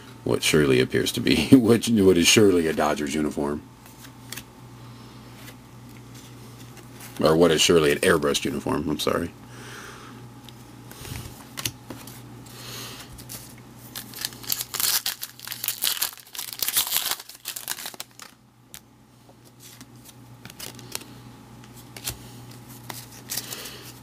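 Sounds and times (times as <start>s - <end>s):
wrapper tearing and crinkling: 13.8s - 18.4s
cards clicking: 19.7s - 23.6s.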